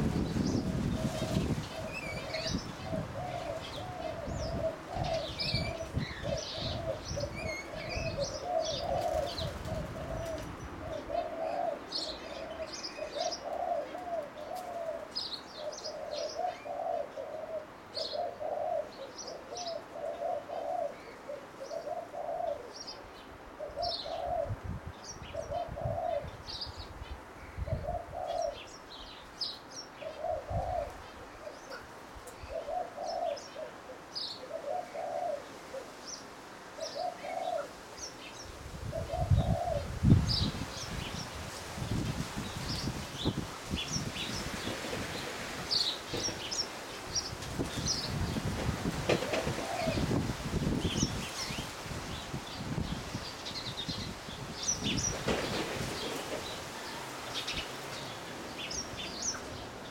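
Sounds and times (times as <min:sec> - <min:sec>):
dove cooing: 0:00.0 - 0:22.9, 0:23.6 - 0:24.6, 0:25.2 - 0:26.4, 0:27.6 - 0:28.7, 0:30.0 - 0:36.0, 0:36.8 - 0:37.8, 0:38.9 - 0:40.4, 0:47.7 - 0:51.0.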